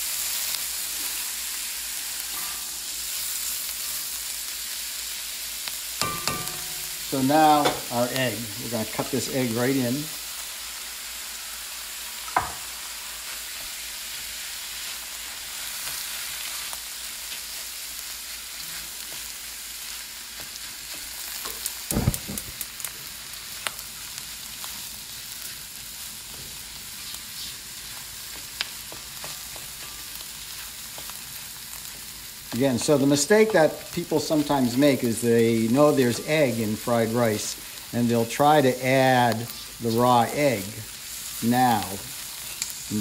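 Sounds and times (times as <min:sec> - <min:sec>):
food sizzling in a wok: 0:00.0 - 0:43.0
spatula knocking against wok: 0:06.0 - 0:07.9.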